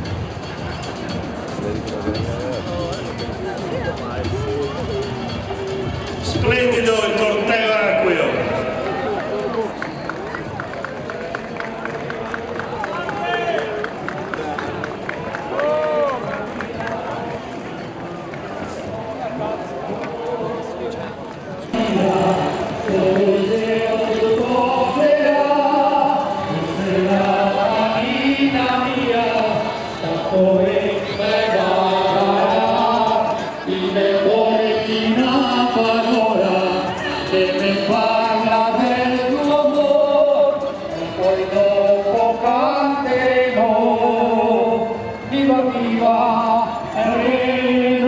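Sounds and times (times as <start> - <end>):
men singing slow chant: 21.8 - 48.0.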